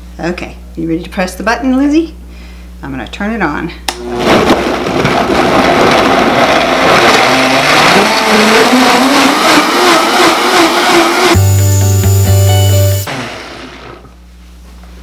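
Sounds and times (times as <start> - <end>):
blender motor running: 3.9 - 4.2, 5.4 - 14.1.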